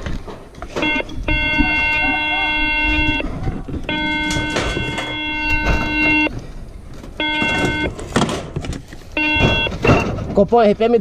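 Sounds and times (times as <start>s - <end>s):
electronic beep tone: 0.8s - 3.3s, 3.9s - 6.3s, 7.2s - 7.9s, 9.2s - 10.1s.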